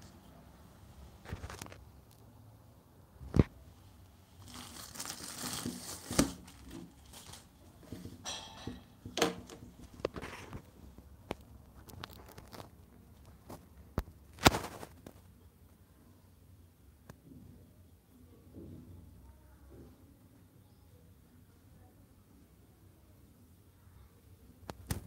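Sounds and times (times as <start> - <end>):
plastic packaging crinkling: 1.2 - 1.8, 4.3 - 8.3, 11.6 - 13.7, 14.3 - 15.3.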